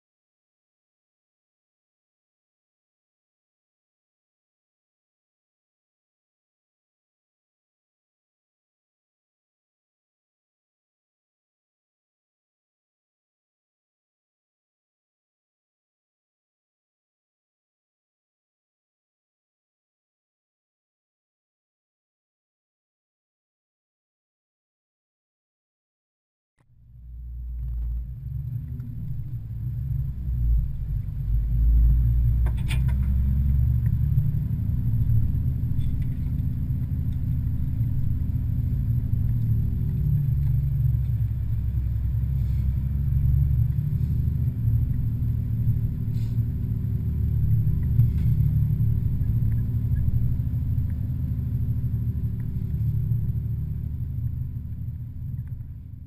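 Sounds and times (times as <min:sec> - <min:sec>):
engine and tyres rumbling: 0:26.6 - 0:56.0.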